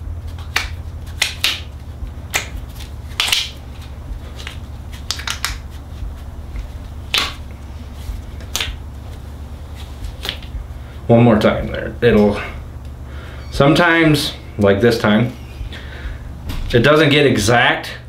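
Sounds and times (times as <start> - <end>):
steady low hum: 0.0 - 18.0
rubber snapping and rubbing: 0.3 - 7.5, 8.4 - 9.1, 10.1 - 10.5.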